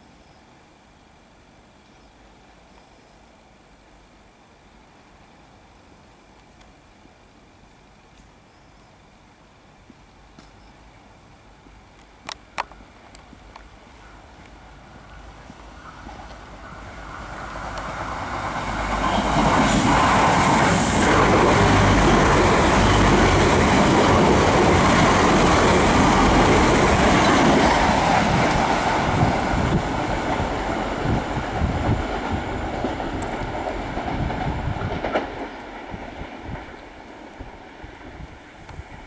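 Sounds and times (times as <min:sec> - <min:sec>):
train passing at speed: 0:14.0 - 0:39.0.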